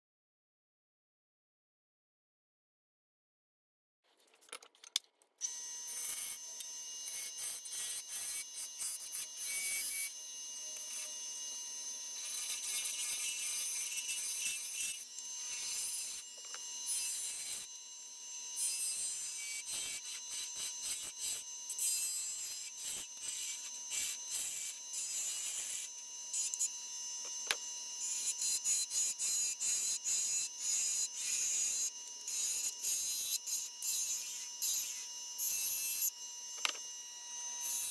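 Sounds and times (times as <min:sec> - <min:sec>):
turning tool scraping wood: 0:12.2 - 0:17.7.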